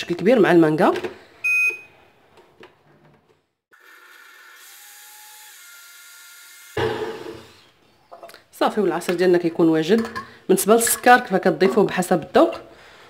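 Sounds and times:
high beep: 1.4s - 1.9s
blender motor running: 3.7s - 7.8s.

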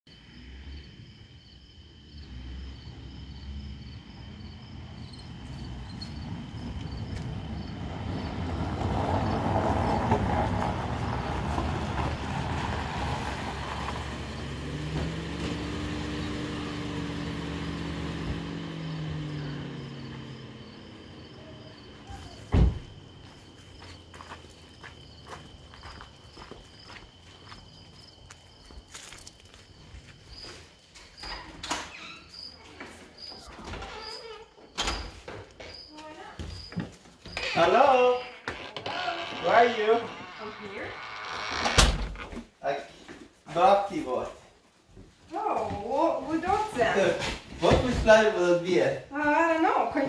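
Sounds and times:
car driving on gravel: 2.2s - 30.8s, 45.7s - 50.0s
car door shutting: 22.4s - 23.0s.

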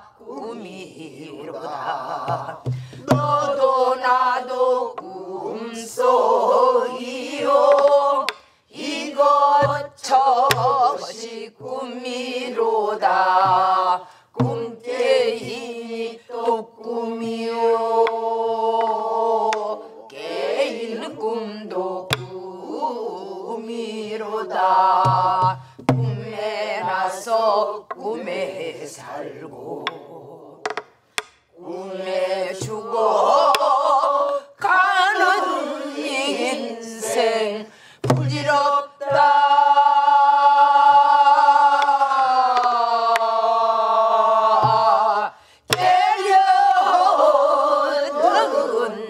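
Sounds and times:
woman singing folk song: 9.2s - 18.2s, 32.6s - 40.6s
drumstick clicks on wooden shell: 30.7s - 31.5s.

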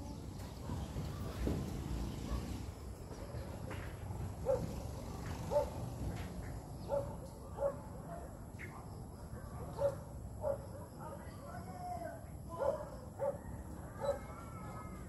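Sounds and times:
low steady background noise: 0.0s - 15.0s
dog barking: 4.4s - 4.8s, 5.5s - 5.8s, 6.8s - 8.3s, 9.6s - 11.0s, 12.6s - 14.3s.

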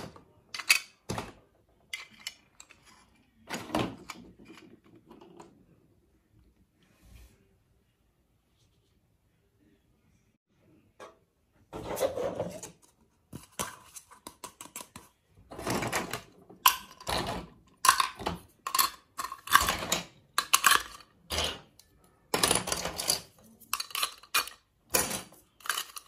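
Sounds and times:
plastic toy pieces clattering: 0.5s - 1.2s, 13.6s - 26.0s.

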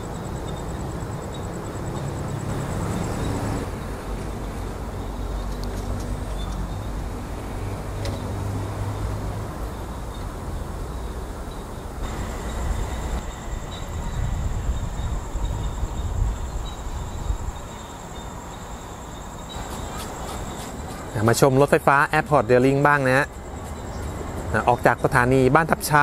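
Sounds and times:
distant road and rail traffic: 0.0s - 26.0s
thin high whine: 12.0s - 26.0s.

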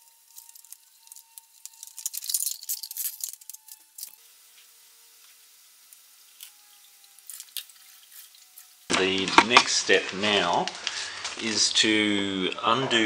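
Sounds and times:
plastic funnel rattling and clicking: 0.0s - 4.2s.

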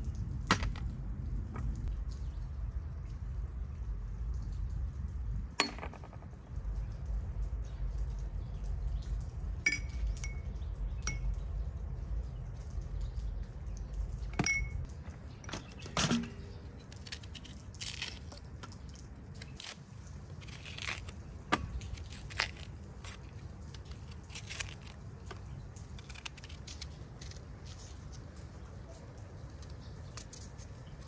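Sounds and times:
light clink: 9.6s - 11.5s, 14.3s - 16.5s
knife cutting raw onion: 19.4s - 27.7s.

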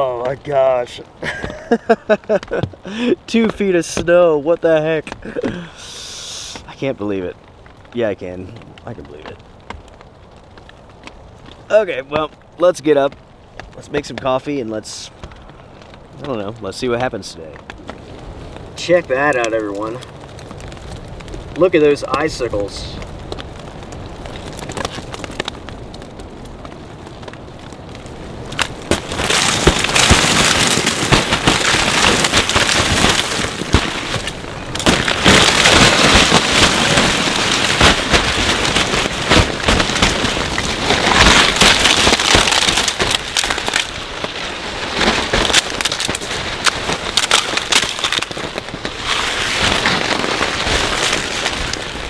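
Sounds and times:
ice cracking and sliding off a tarp: 18.0s - 26.0s, 28.3s - 52.0s.

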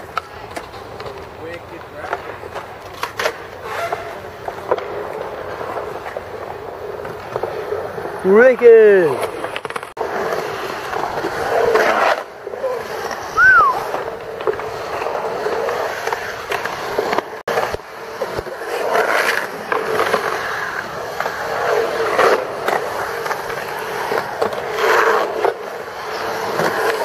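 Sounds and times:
skateboard wheels rolling on concrete: 0.0s - 27.0s
short high tone: 13.4s - 13.8s.

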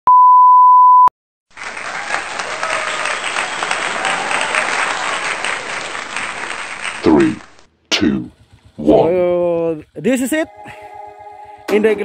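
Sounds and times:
crowd applauding and cheering: 1.5s - 7.6s.

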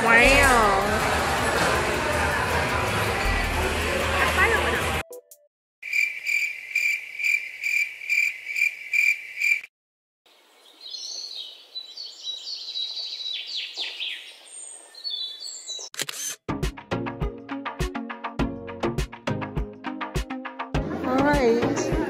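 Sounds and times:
cricket chirping: 5.8s - 9.7s
birds singing warbling trills: 10.4s - 15.9s.

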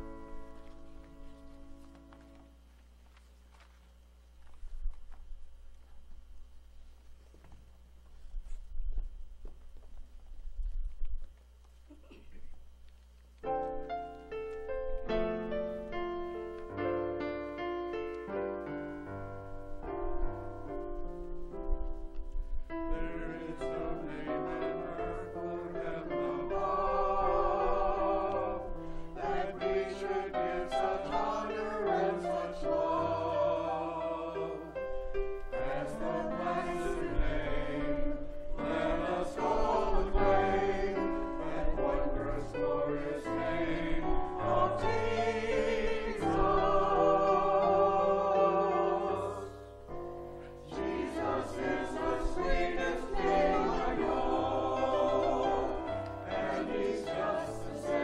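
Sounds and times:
choir singing a hymn: 0.0s - 1.4s, 18.6s - 58.0s
piano accompaniment: 0.0s - 2.6s, 13.4s - 58.0s.

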